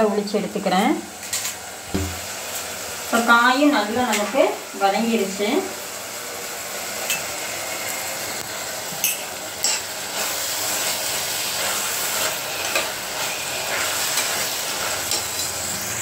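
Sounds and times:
vegetables sizzling in oil: 0.0 - 16.0
steel ladle scraping a pot: 11.5 - 15.5.

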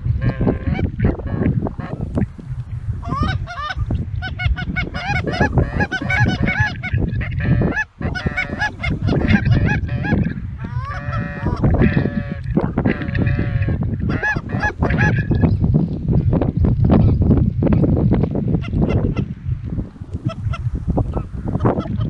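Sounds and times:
wind rumble on microphone: 0.0 - 22.0
geese honking: 0.2 - 2.1, 3.0 - 15.4, 20.2 - 22.0.

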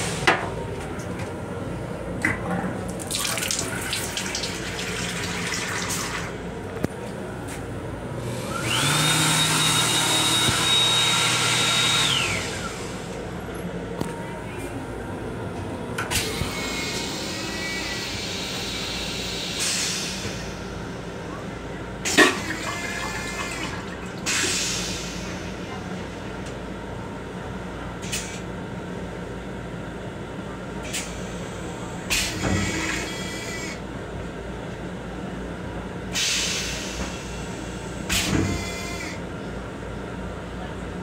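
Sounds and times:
train low rumble: 0.0 - 3.2, 4.7 - 8.8, 12.1 - 32.2, 33.0 - 41.0.

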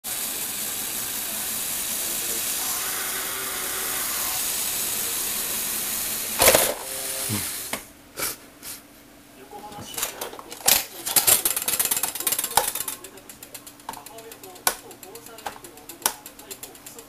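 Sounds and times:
electric motors and gears whirring: 0.0 - 7.9
toy truck clattering onto tabletop: 6.4 - 6.8.

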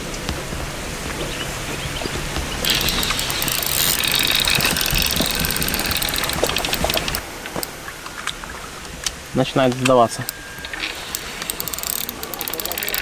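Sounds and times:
fishing reel ticking whirr: 2.6 - 7.7, 10.2 - 13.0.

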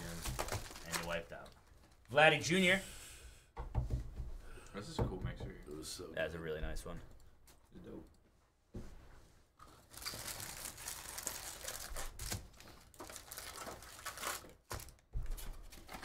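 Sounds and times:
packs thumping on table: 0.0 - 1.2, 11.8 - 16.0
plastic wrappers crinkling: 0.0 - 2.1, 9.6 - 16.0.

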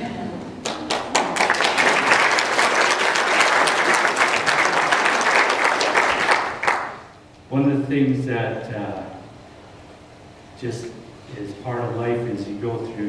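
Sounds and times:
crowd clapping: 0.6 - 7.1.

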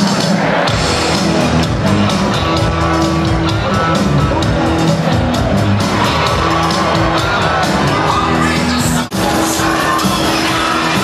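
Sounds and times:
loud music with beat: 0.0 - 11.0.

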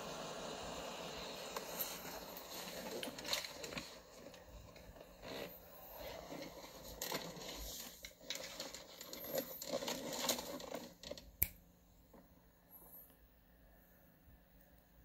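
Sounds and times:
rustling and scraping handling noise: 1.4 - 11.4
sharp click: 11.4 - 11.6.

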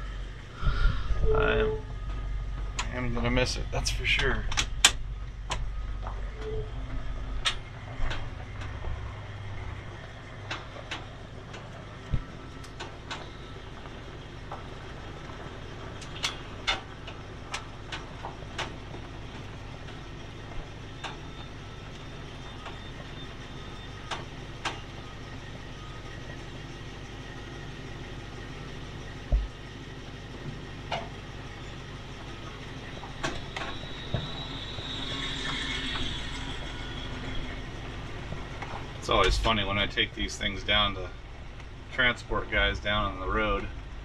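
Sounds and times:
vehicle engine hum: 0.0 - 44.0
light clicks and rattles: 10.0 - 20.1
low thump: 29.3 - 29.6.

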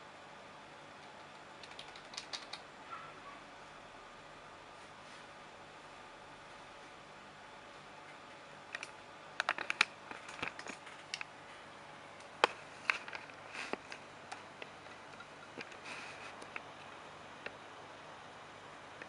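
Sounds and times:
keyboard keys clicking: 1.0 - 2.6.

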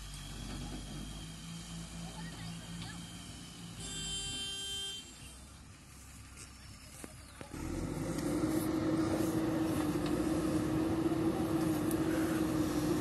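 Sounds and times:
backhoe diesel engine running: 0.0 - 13.0
vehicle horn blaring: 3.8 - 5.4.

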